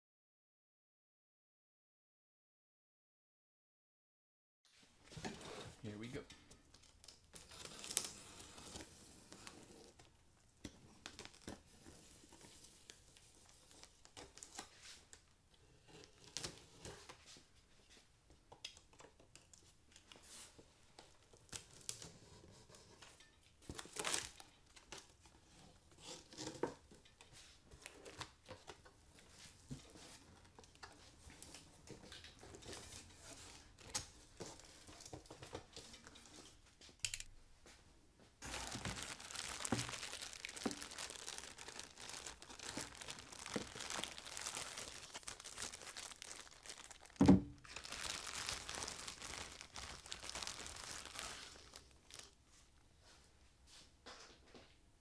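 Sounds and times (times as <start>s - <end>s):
plastic packing crinkling: 6.5s - 10.0s, 10.8s - 15.2s, 23.7s - 25.3s, 38.4s - 52.4s.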